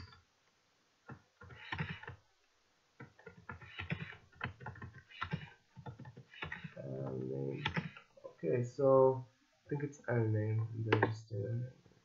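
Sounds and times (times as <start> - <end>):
keyboard typing: 1.1 - 2.2, 3.0 - 6.8, 7.5 - 8.1.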